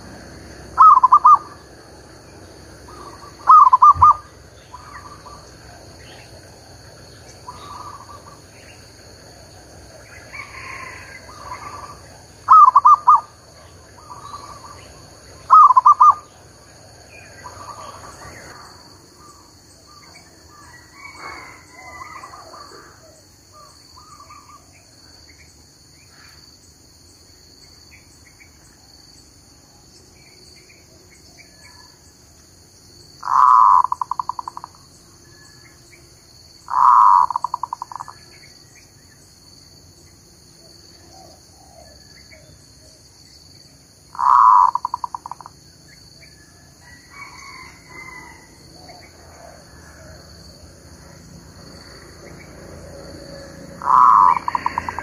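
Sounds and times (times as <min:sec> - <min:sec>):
dove cooing: 0:00.0 - 0:24.8, 0:33.2 - 0:34.8, 0:36.7 - 0:38.2, 0:44.1 - 0:45.5, 0:53.7 - 0:55.0
high insect drone: 0:00.0 - 0:55.0
faint bird chirps: 0:02.9 - 0:06.4, 0:07.1 - 0:08.9, 0:10.0 - 0:16.5, 0:33.2 - 0:35.8, 0:36.6 - 0:39.2.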